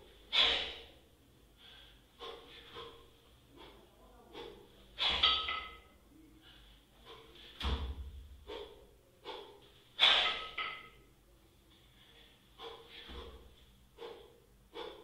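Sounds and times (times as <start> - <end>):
hard rhythmic breathing: 0.0 - 15.0
kettlebells knocking down: 5.0 - 5.8, 7.6 - 8.2
dull thud: 7.6 - 8.2.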